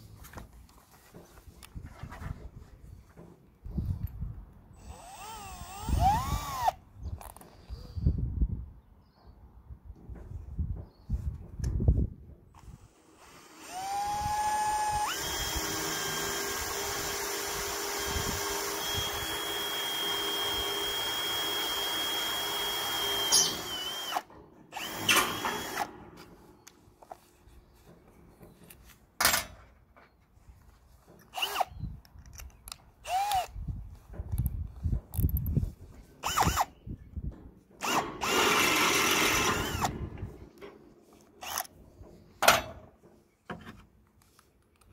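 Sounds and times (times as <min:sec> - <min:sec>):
cordless drill boring into steel: 0:04.8 - 0:06.8, 0:12.6 - 0:25.9, 0:31.3 - 0:31.8, 0:33.0 - 0:33.6, 0:36.2 - 0:36.7, 0:37.8 - 0:40.0, 0:41.4 - 0:41.7.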